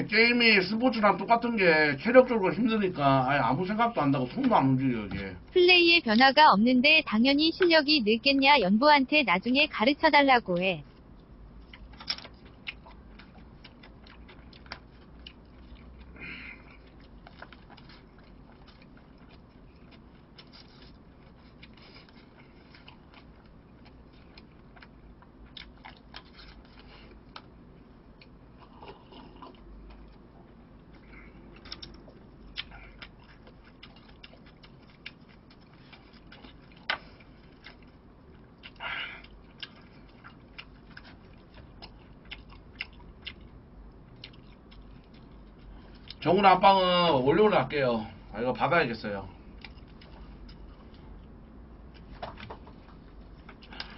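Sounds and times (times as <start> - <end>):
person chewing: 10.9 - 46.2, 49.4 - 53.9.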